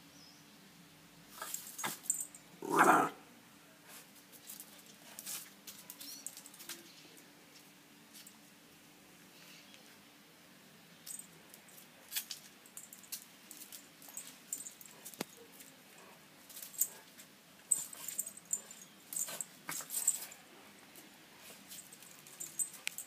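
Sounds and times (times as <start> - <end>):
light metallic jingling: 1.3 - 2.7, 4.4 - 7.1, 10.9 - 23.0
puppy paws scratching on tiles: 3.9 - 8.4, 11.1 - 23.0.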